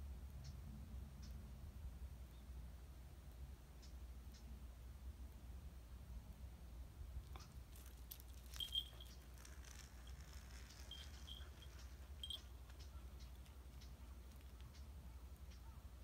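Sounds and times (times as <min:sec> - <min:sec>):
low steady hum: 0:00.0 - 0:16.0
light scattered ticks: 0:00.3 - 0:01.4, 0:03.8 - 0:04.5, 0:07.2 - 0:15.8
high bird chirps: 0:08.5 - 0:15.8.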